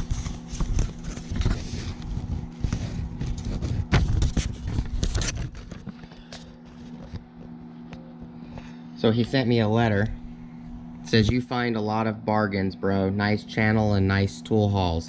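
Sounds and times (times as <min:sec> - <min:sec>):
paper rustling and crackling: 0:00.0 - 0:07.3.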